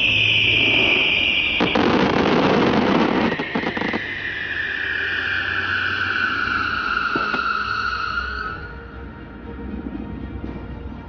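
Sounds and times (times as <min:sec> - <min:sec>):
fireworks rushing hiss: 0:00.4 - 0:04.9
fireworks crackles: 0:01.4 - 0:04.3.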